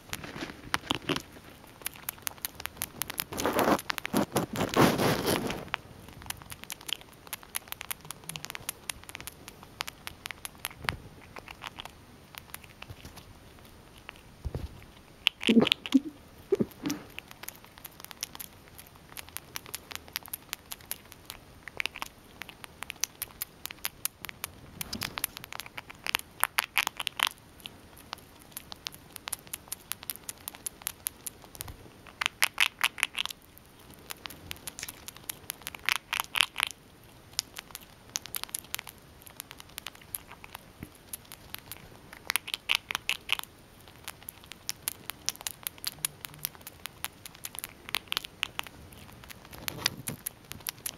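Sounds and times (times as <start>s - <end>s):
squirrel crunching a treat: 0.0s - 50.9s.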